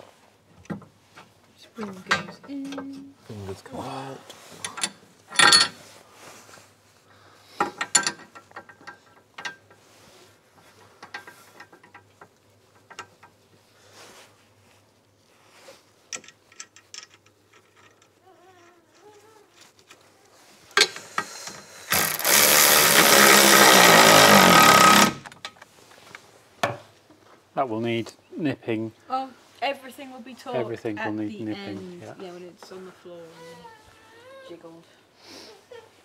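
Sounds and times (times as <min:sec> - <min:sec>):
metal parts clicking and clunking: 0:04.6 - 0:05.8, 0:07.6 - 0:09.7, 0:16.1 - 0:20.0
powered wrench running: 0:20.8 - 0:25.4.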